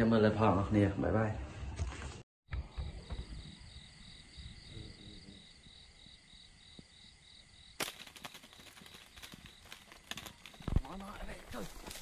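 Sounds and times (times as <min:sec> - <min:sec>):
crickets chirping: 0:02.5 - 0:12.0.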